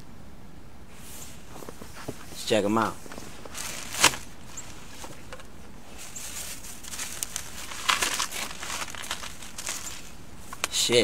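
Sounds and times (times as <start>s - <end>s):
tissue paper crinkling: 3.0s - 5.3s, 5.9s - 10.6s.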